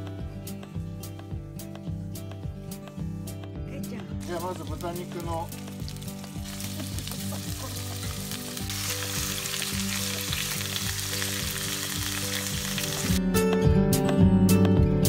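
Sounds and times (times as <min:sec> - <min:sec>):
background music with steady beat: 0:00.0 - 0:15.0
meat sizzling in hot oil: 0:04.2 - 0:13.2.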